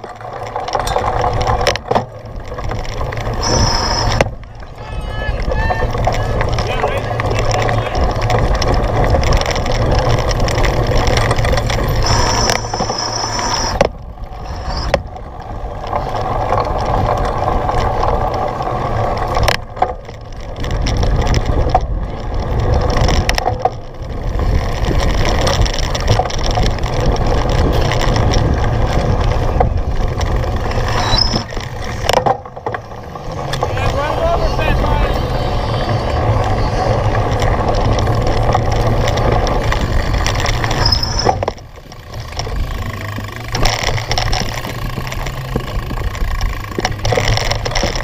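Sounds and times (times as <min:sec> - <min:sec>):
bike and tyres rattling: 0:00.0 - 0:48.0
wind buffeting on microphone: 0:00.8 - 0:48.0
short high squeal: 0:03.4 - 0:04.2, 0:12.0 - 0:13.8, 0:14.4 - 0:15.0, 0:30.8 - 0:31.5, 0:40.8 - 0:41.4.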